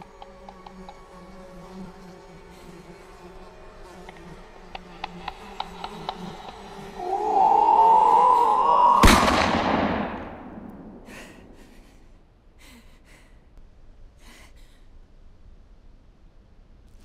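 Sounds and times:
person screaming: 0:07.0 - 0:09.4
rifle shot with echo: 0:09.0 - 0:11.6.

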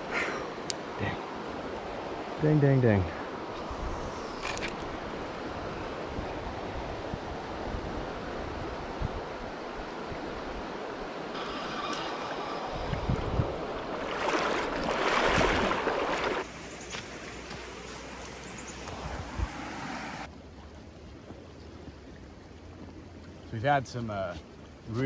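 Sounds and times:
river flowing: 0:00.0 - 0:25.0
wind on microphone: 0:03.5 - 0:10.7, 0:11.4 - 0:16.4, 0:18.9 - 0:20.2.

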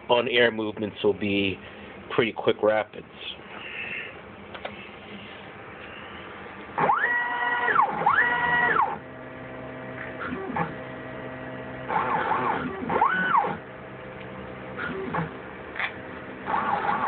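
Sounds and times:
low steady motor hum: 0:00.0 - 0:17.0
stepper motor whine: 0:05.8 - 0:17.0.

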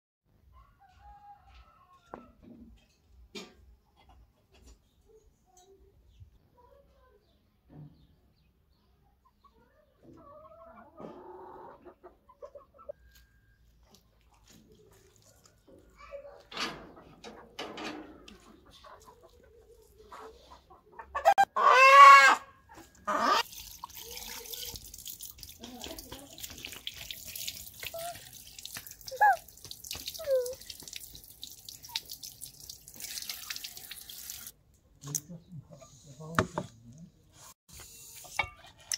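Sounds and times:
chickens clucking: 0:09.1 - 0:23.4
water drips and splashes: 0:13.9 - 0:16.0, 0:23.4 - 0:35.2
tap water running into sink: 0:23.4 - 0:34.5.

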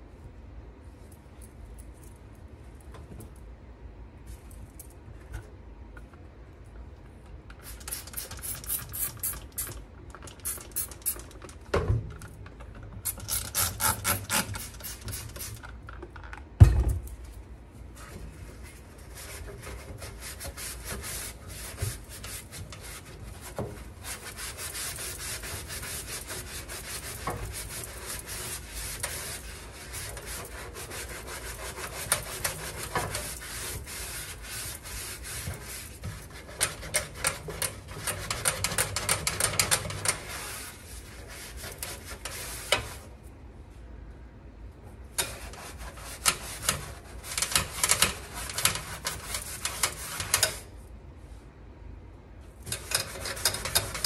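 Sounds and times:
scrubbing pad on metal: 0:19.0 - 0:43.1, 0:45.2 - 0:50.6, 0:52.7 - 0:54.0.

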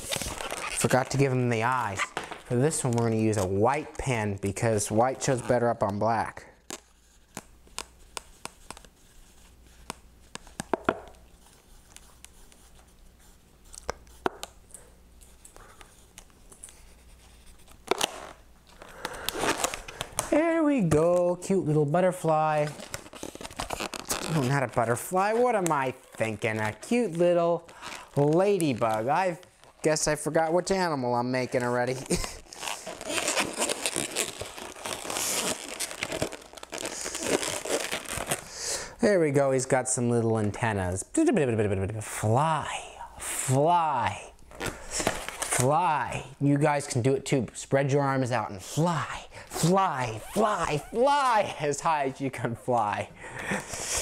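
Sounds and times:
rubber balloon crinkling: 0:00.0 - 0:04.0, 0:04.6 - 0:14.6, 0:15.2 - 0:38.6, 0:48.8 - 0:54.0.

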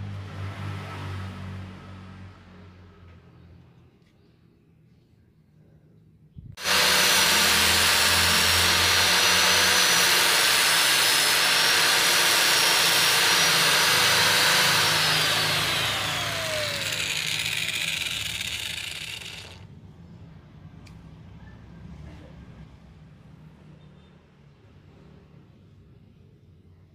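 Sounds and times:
angle grinder whining: 0:06.6 - 0:19.7.

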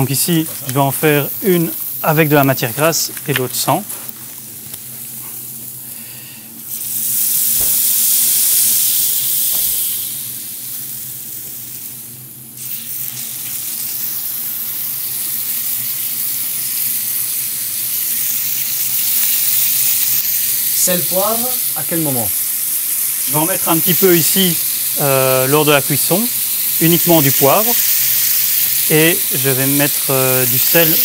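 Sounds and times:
steaks sizzling in frying pans: 0:00.0 - 0:31.0.

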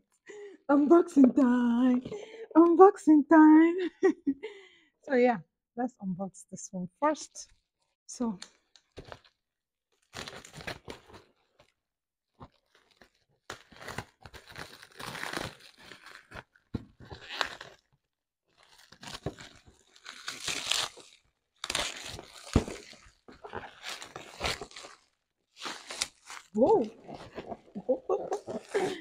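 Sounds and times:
bubble wrap crinkling and tearing: 0:08.5 - 0:09.4, 0:10.0 - 0:11.8, 0:12.4 - 0:17.9, 0:18.5 - 0:29.0.

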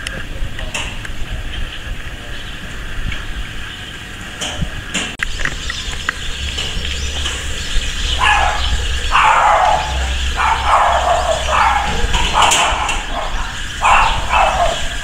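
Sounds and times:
animal crying out: 0:07.9 - 0:15.0.

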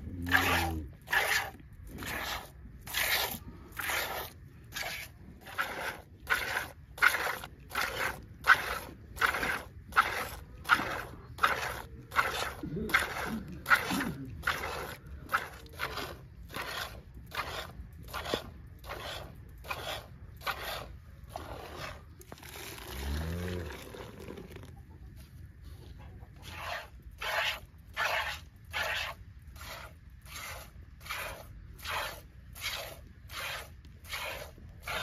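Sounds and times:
milk squirting into a pail: 0:00.3 - 0:24.8.

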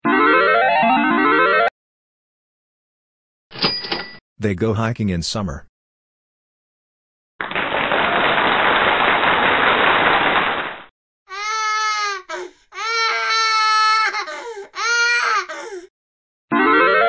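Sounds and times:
recorded baby crying: 0:11.3 - 0:15.9.

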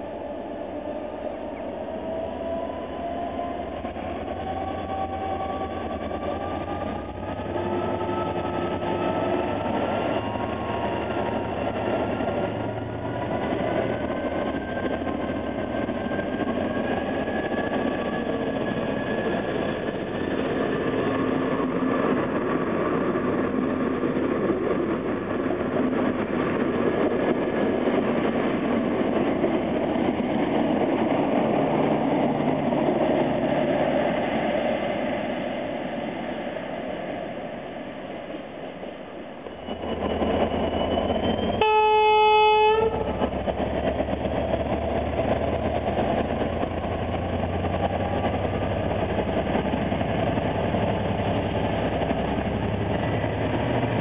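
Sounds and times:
diesel locomotive engine: 0:00.0 - 0:54.0
train wheels rumbling on rails: 0:00.0 - 0:54.0.

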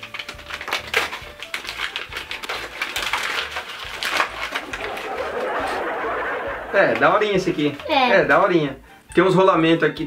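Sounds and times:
paper crinkling and rustling: 0:00.0 - 0:05.4
background music: 0:00.0 - 0:10.0.

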